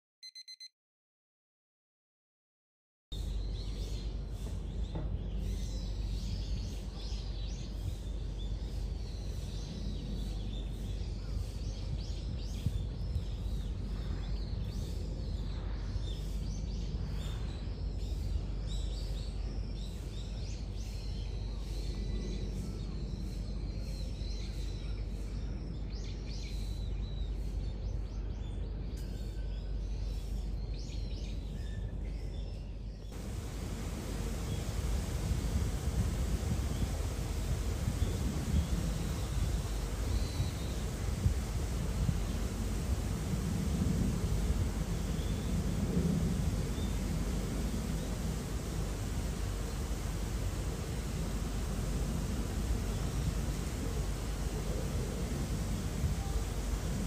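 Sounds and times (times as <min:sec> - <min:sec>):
small birds chirping: 0:03.2 - 0:57.0
steady low rumble: 0:33.0 - 0:57.0.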